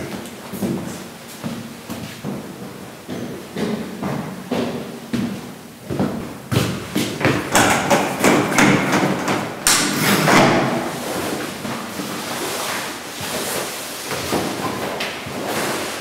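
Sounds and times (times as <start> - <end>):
sharp knocks: 7.2 - 10.9.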